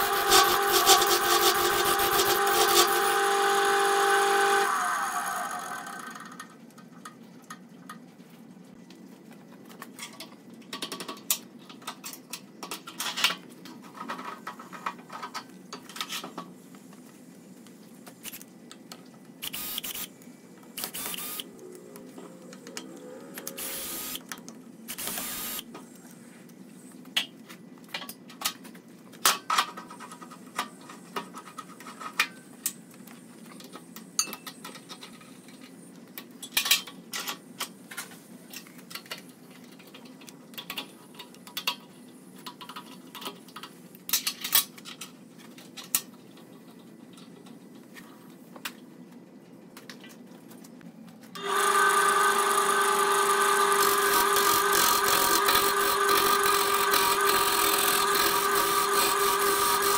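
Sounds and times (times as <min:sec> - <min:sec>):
cordless drill driving screws: 0:00.0 - 0:06.2, 0:19.4 - 0:20.1, 0:20.8 - 0:21.4, 0:23.5 - 0:24.2, 0:24.9 - 0:25.6, 0:51.4 - 0:59.9.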